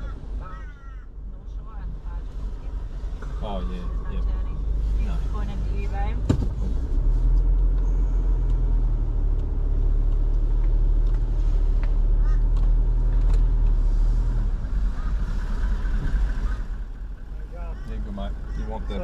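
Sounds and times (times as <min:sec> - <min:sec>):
vehicle engine low drone: 0:00.0 - 0:19.0.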